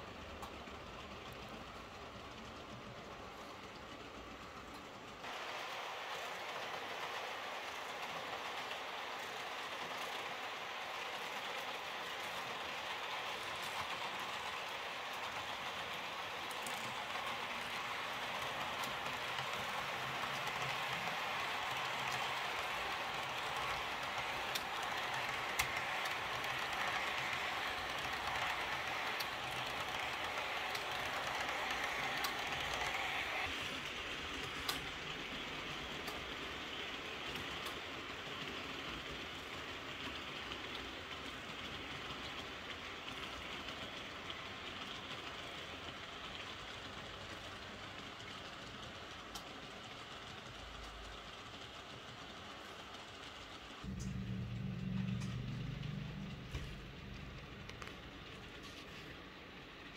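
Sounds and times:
model train wheels rolling: 0:00.0 - 0:59.9
scattered clicks: 0:08.0 - 0:33.5.

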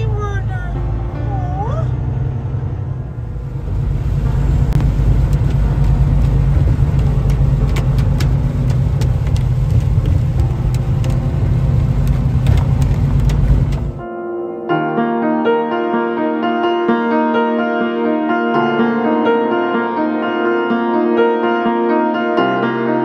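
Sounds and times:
truck engine rumble: 0:00.0 - 0:14.0
tyres on a wet road: 0:00.0 - 0:14.0
rain ticking on windshield: 0:04.4 - 0:14.0.

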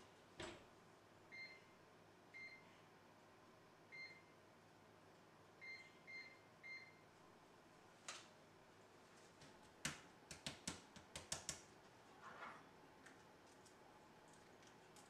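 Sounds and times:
oven control panel beeps: 0:01.3 - 0:01.7, 0:02.4 - 0:02.7, 0:04.0 - 0:04.3, 0:05.6 - 0:07.0.

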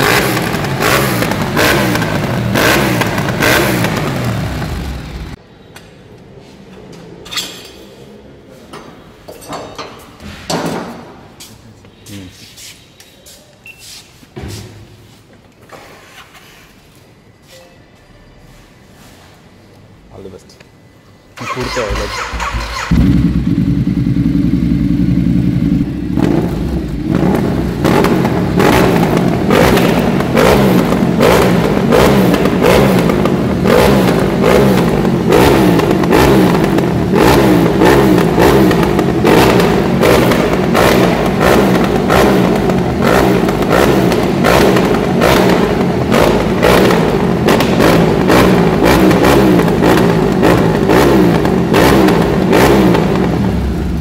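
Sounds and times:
motorcycle engine revving: 0:00.0 - 0:05.4, 0:21.4 - 0:54.0.

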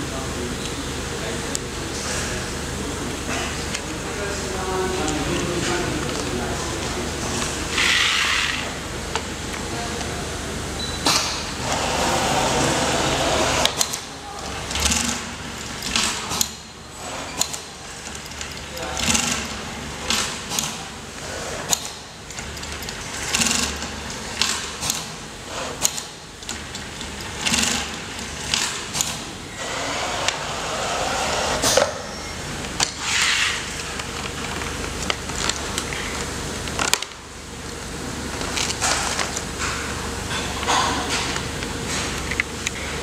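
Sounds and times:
sewing machine running: 0:11.5 - 0:20.8, 0:21.4 - 0:31.7.

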